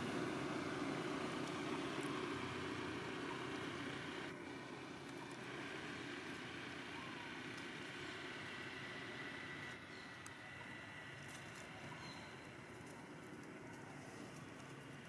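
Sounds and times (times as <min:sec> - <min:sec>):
road traffic rumble: 0:00.0 - 0:15.0.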